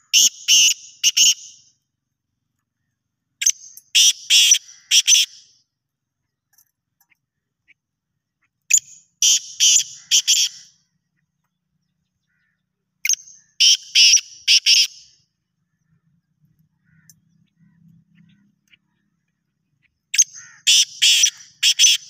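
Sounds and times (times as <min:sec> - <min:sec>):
francolin calling: 0:00.0 - 0:01.6, 0:08.7 - 0:10.8, 0:12.2 - 0:16.1, 0:19.8 - 0:22.0.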